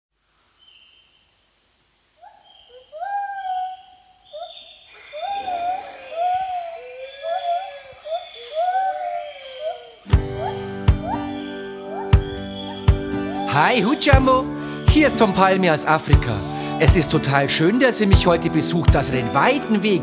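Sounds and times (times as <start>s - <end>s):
animal hooting calls: 2.2s - 17.2s
song music: 10.1s - 20.0s.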